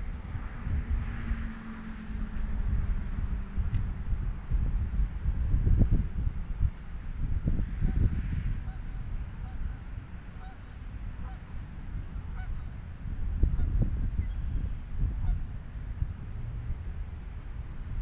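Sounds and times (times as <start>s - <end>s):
wind rumbling on microphone: 0.0s - 18.0s
faint geese honking: 7.8s - 12.8s, 15.2s - 15.5s.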